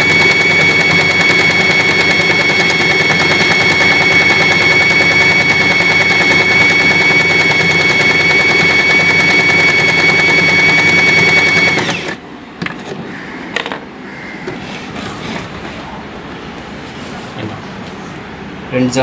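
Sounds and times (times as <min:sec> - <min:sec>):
sewing machine motor whine: 0:00.0 - 0:12.2.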